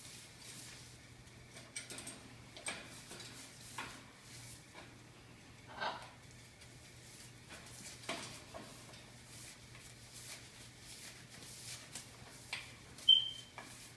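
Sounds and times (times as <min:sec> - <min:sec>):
low steady hum: 0:00.0 - 0:13.9
feather rustles: 0:06.4 - 0:13.9.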